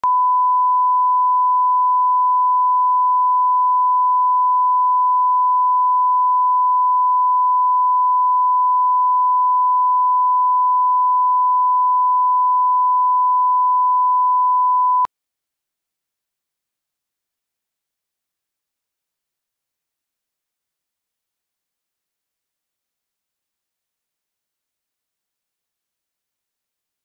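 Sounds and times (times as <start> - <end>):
test tone beep: 0.0 - 15.1.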